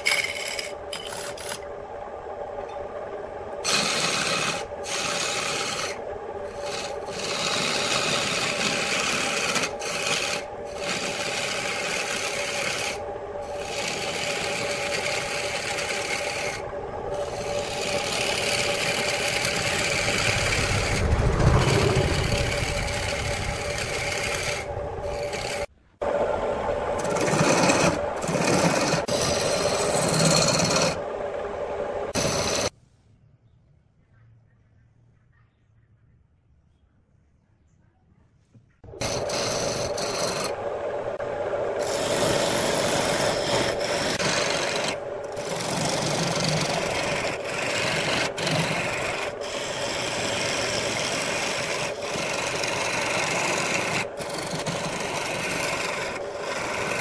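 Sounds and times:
turning tool scraping wood: 0.0 - 1.6, 3.6 - 25.7, 27.0 - 31.0, 32.1 - 32.7, 39.0 - 40.6, 41.8 - 57.0
lathe motor hum: 0.0 - 32.7, 38.9 - 57.0.

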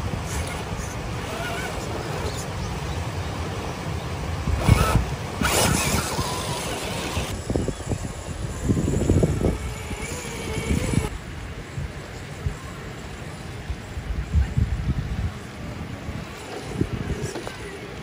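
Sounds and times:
faint electric motor whine: 0.0 - 11.2
wind on microphone: 4.4 - 12.8, 13.6 - 18.0.

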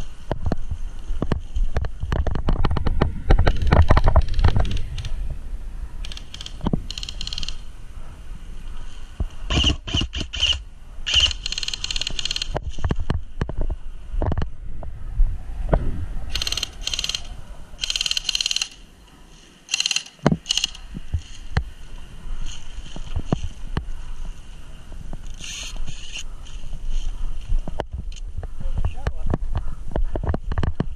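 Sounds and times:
airsoft rifle bursts: 19.7 - 20.8.

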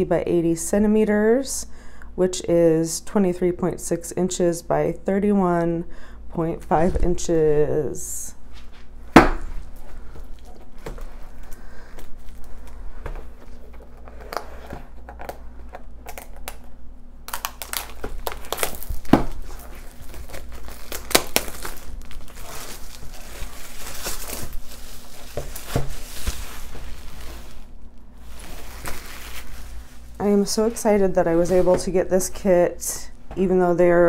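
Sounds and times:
cardboard packaging crinkling: 9.5 - 16.7, 17.3 - 32.0.

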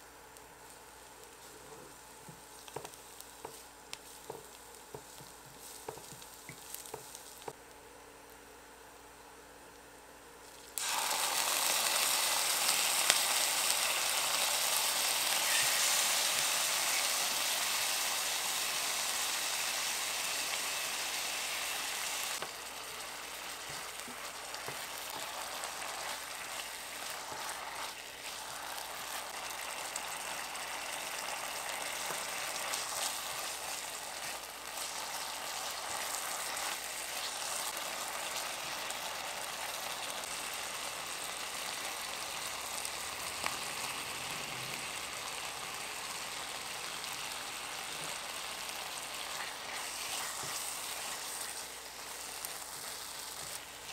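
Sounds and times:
food sizzling in hot oil: 1.0 - 7.6, 10.5 - 53.9
spatula stirring against pan: 1.2 - 7.6, 22.4 - 39.9, 47.9 - 53.9.

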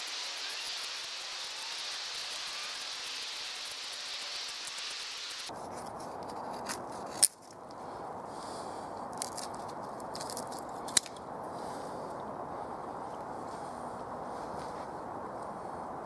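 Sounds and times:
wood cracking: 9.2 - 11.2.

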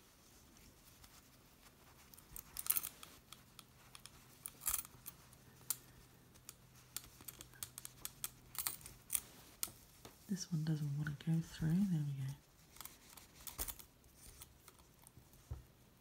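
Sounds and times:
metal purse frame clicking: 6.4 - 9.8.

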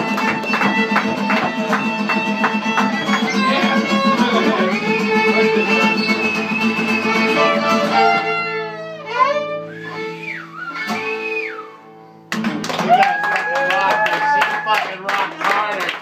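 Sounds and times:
people clapping: 0.0 - 7.3, 12.3 - 16.0
held string notes: 0.0 - 12.6
guitar accompaniment: 0.0 - 16.0
voices: 2.6 - 7.6.

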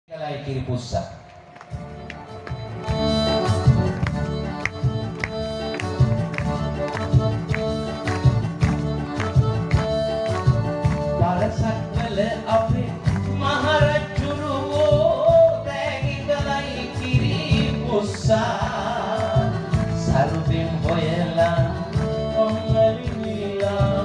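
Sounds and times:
live band music: 1.3 - 24.0
man singing: 11.1 - 24.0.

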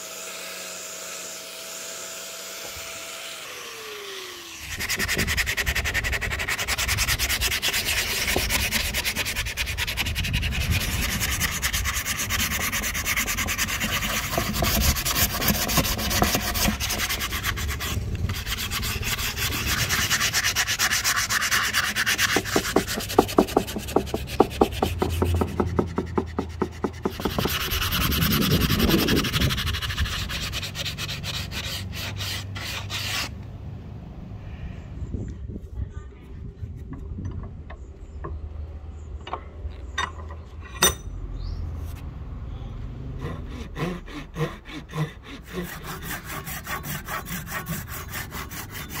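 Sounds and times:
sandpaper scraping wood: 4.5 - 33.4, 43.2 - 49.0.

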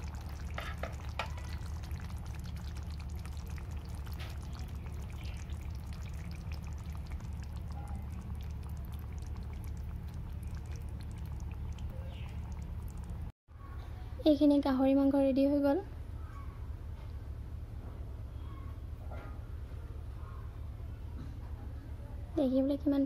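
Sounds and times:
curry bubbling softly: 0.0 - 13.3
low hum: 0.0 - 13.3.

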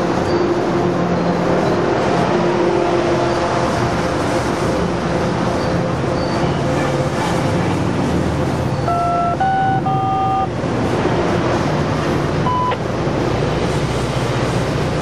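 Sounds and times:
brief high-pitched tones: 8.9 - 10.5.

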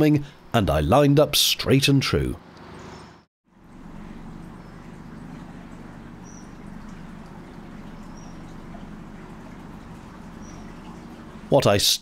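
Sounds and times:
outboard motor running: 2.4 - 11.6
faint high bird chirps: 4.6 - 11.5.

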